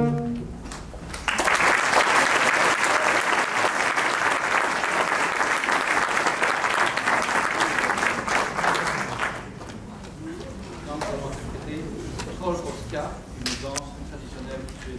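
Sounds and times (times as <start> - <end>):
audience applauding: 1.1 - 9.8.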